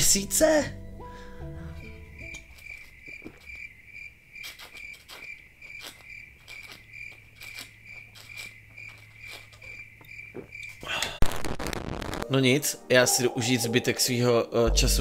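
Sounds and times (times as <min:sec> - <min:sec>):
cricket chirping: 0:01.0 - 0:11.1.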